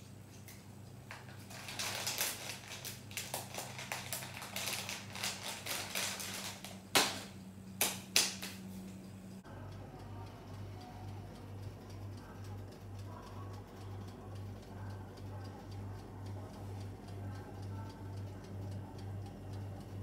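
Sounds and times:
electric oven humming: 0:00.0 - 0:20.0
plastic bag crinkling: 0:01.1 - 0:07.0
loud sharp cracks: 0:06.9 - 0:08.6.

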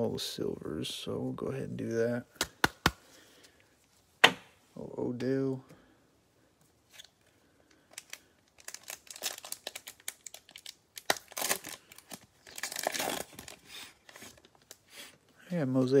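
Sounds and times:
foil wrapper crinkling and tearing: 0:07.8 - 0:14.8.

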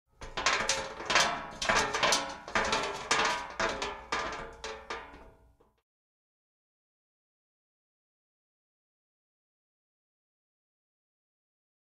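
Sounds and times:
metal clanging: 0:00.2 - 0:05.4.

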